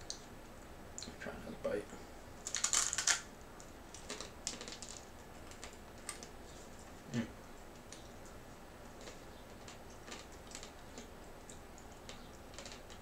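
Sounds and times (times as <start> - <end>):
crunching hard chips: 2.4 - 3.2.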